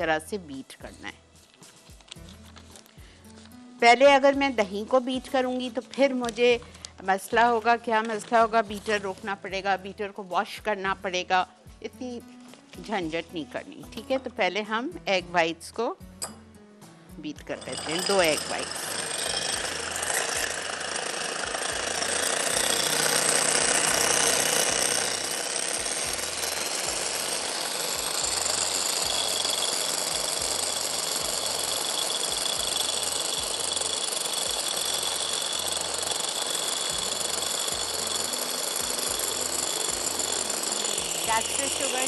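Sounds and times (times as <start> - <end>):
electric hand mixer running: 17.5 - 42.0.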